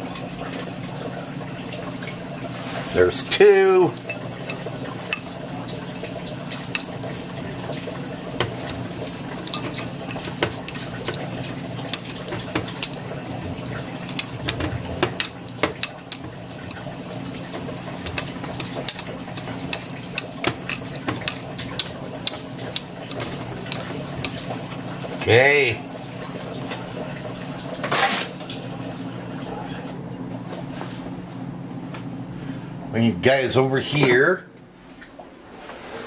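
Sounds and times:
steady low hum: 0.0 - 27.7
spoon clicking against bowl: 6.5 - 6.9, 9.4 - 13.0, 18.1 - 24.4.

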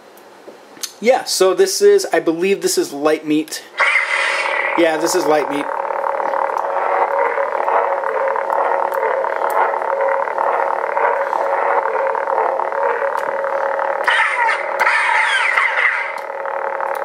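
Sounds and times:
lightsaber electronic hum: 3.6 - 17.0
gliding electronic tones: 3.8 - 17.0.

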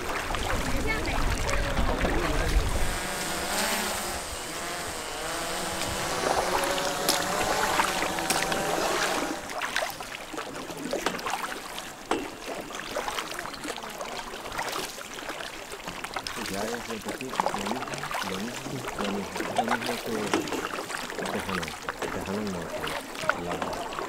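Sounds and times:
oars splashing water: 0.0 - 24.0
faint voices: 16.4 - 24.0.

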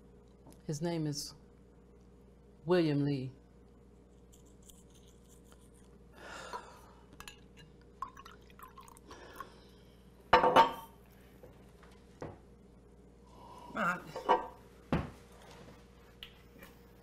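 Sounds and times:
wine pouring into a glass: 8.0 - 9.6.

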